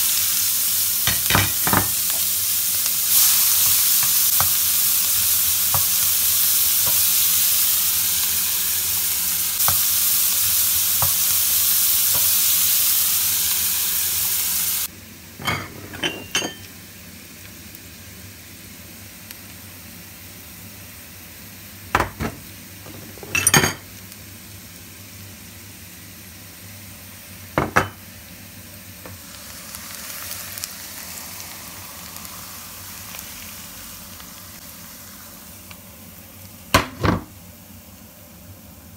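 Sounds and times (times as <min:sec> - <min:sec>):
onions sizzling in oil: 0:00.0 - 0:38.9
dishes clinking: 0:01.1 - 0:01.9, 0:15.4 - 0:16.7, 0:22.0 - 0:23.8, 0:27.6 - 0:28.0
pan knocking against plate: 0:22.0 - 0:23.8, 0:27.6 - 0:28.0.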